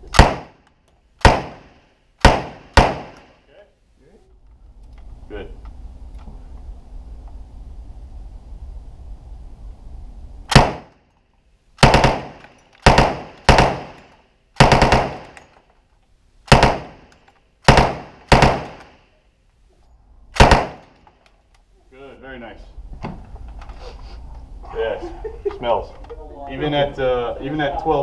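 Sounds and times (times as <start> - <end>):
submachine gun firing indoors: 2.2 - 3.2, 11.8 - 14.0, 14.6 - 15.4, 16.5 - 18.9, 20.4 - 21.0.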